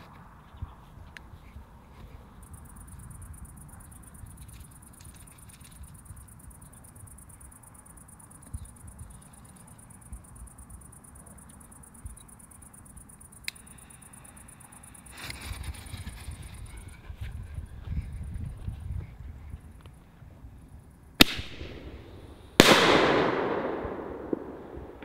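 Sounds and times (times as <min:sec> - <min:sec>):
low wind rumble: 0:14.5 - 0:25.0.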